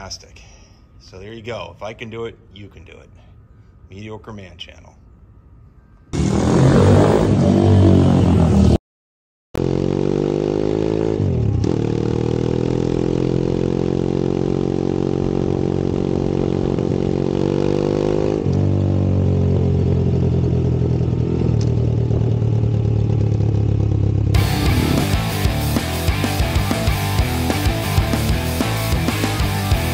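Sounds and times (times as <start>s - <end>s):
pit bike engine riding: 9.6s - 29.9s.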